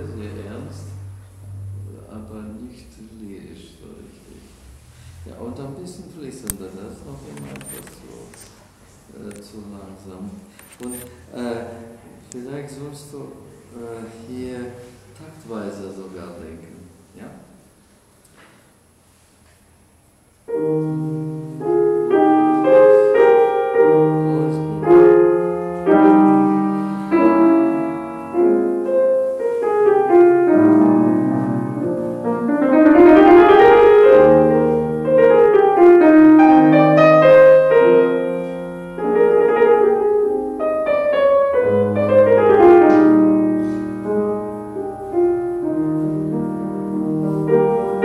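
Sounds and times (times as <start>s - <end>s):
classical piano piece: 0.0s - 3.3s, 20.5s - 48.0s.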